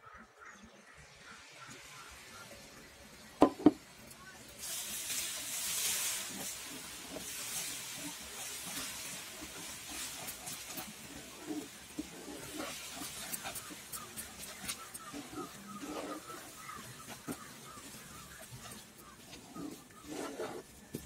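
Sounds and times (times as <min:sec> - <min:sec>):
mixture sizzling with high hiss: 0:00.9 - 0:21.0
wooden spatula stirring: 0:04.6 - 0:21.0.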